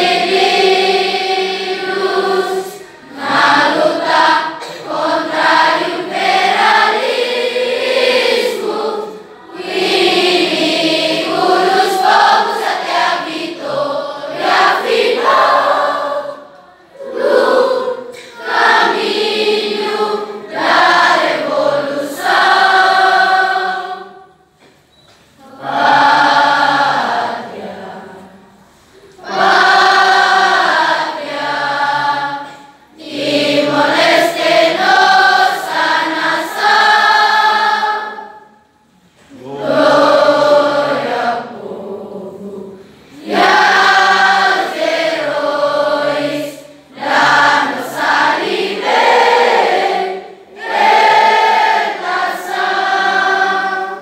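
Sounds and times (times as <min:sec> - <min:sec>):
students singing in unison: 0:00.0 - 0:54.0.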